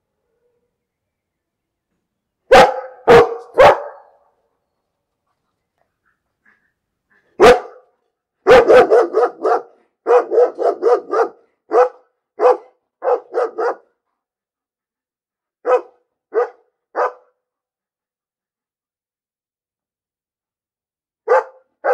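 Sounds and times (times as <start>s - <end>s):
dog barking: 2.5s - 4.3s, 7.4s - 14.0s, 15.6s - 17.4s, 21.2s - 21.9s.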